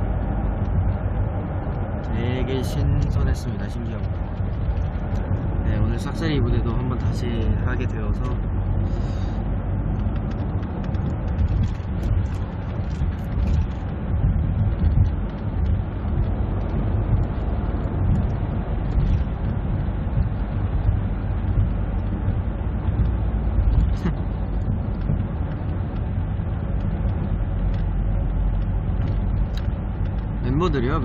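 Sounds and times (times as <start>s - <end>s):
road and engine rumble: 0.0s - 31.0s.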